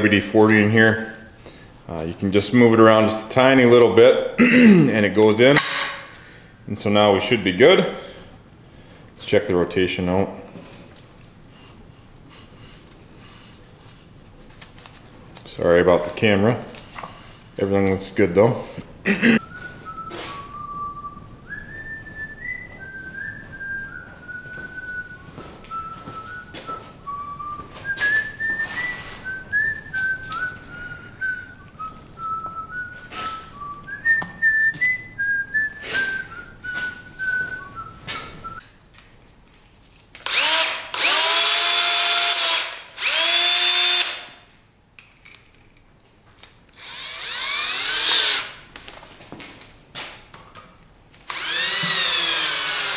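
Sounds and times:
person whistling a tune: 19.4s - 38.6s
power drill bursts: 40.2s - 44.4s, 46.8s - 48.6s, 51.2s - 52.9s.

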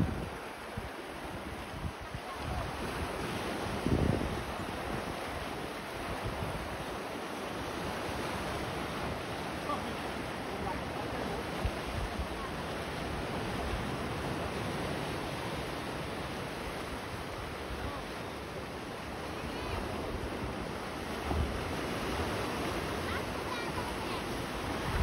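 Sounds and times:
surf washing against rocks: 0.0s - 25.0s
wind thumps on microphone: 24.8s - 25.0s.

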